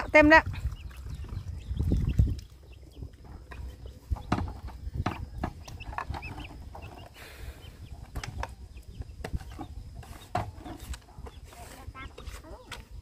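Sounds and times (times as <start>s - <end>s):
chickens clucking: 0.0s - 13.0s
plastic jugs knocking and clattering: 3.0s - 7.2s, 7.9s - 13.0s.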